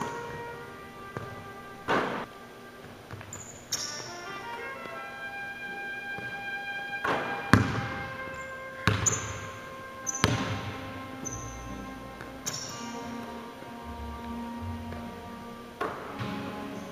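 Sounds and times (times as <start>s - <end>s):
soft background music: 0.0s - 16.9s
basketball bouncing on wooden floor: 8.8s - 9.4s, 10.1s - 10.7s.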